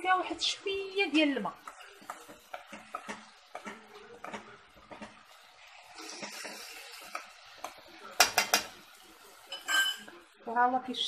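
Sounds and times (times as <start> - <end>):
onions sizzling softly: 0.0 - 11.0
spoon scraping a steel pot: 1.5 - 8.8, 9.4 - 10.2
spoon clinking against pot: 1.6 - 5.3, 6.2 - 8.8, 9.4 - 10.2.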